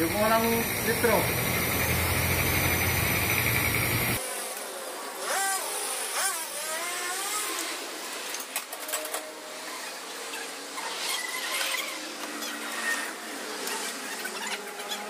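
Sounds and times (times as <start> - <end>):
workshop noise: 0.0 - 4.2.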